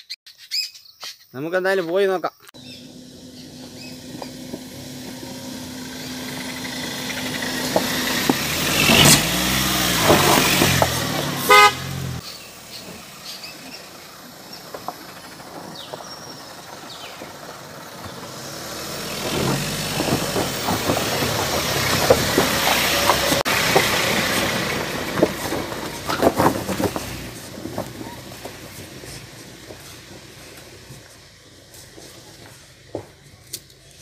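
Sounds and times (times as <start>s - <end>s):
car engine passing: 2.6s - 33.3s
tyres knocking over stones: 19.5s - 31.1s.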